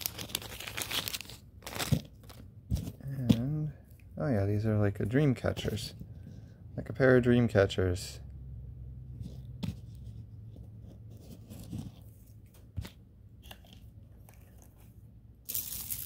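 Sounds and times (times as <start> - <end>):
plastic bag crinkling: 0.0 - 2.4.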